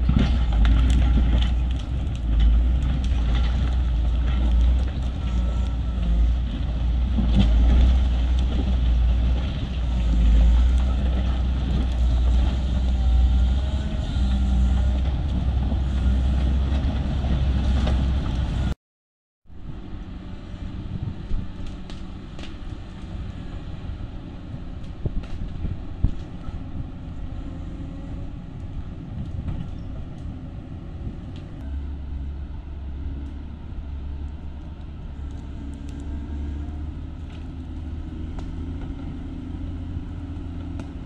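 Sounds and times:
blade scraping rocky road: 0.0 - 18.8
grader diesel engine running: 0.0 - 18.8, 19.6 - 41.0.

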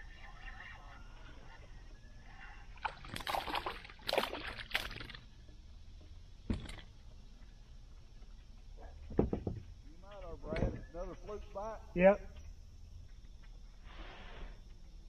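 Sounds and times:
fish splashing at surface: 2.8 - 5.2.

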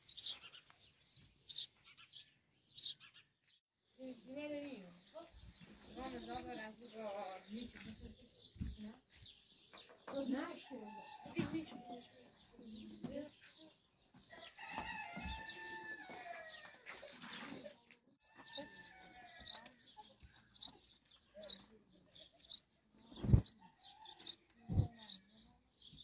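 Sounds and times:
rooster crowing: 14.6 - 16.7.

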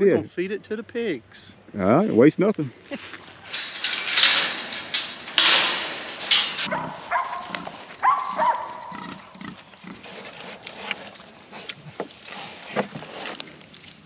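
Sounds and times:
metal gate and chain rattling: 2.9 - 9.5
pigs squealing and grunting: 6.6 - 12.8.

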